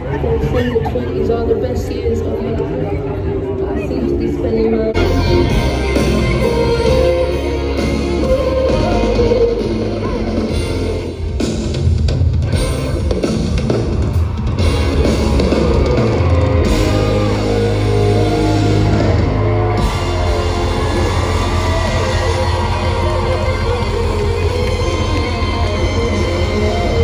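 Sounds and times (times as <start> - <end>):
guitar: 0.0 - 27.0
person singing: 4.5 - 10.9, 19.8 - 27.0
bass line: 4.8 - 27.0
heavy drums: 5.0 - 27.0.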